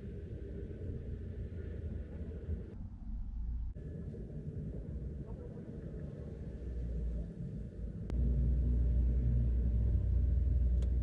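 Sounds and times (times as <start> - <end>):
vehicle engine idling rumble: 3.8 - 11.0.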